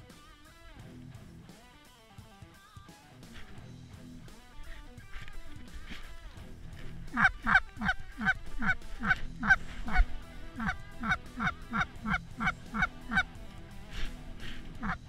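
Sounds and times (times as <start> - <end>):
goose honking: 4.3 - 15.0.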